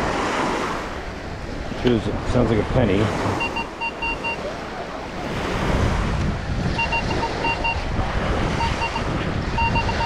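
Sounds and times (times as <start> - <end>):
surf: 0.0 - 10.0
wind: 0.0 - 10.0
metal detector beeps: 3.4 - 4.4, 6.8 - 7.8, 8.6 - 10.0.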